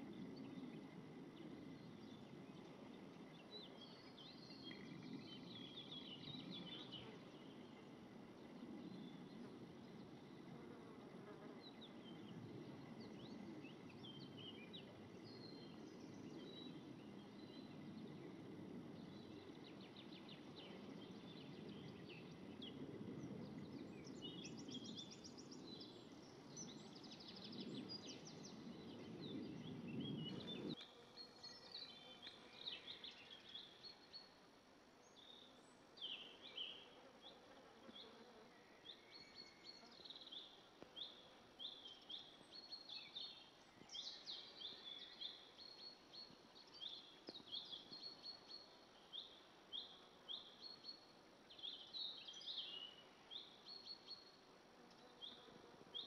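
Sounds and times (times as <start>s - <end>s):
low background noise: 0.0s - 56.0s.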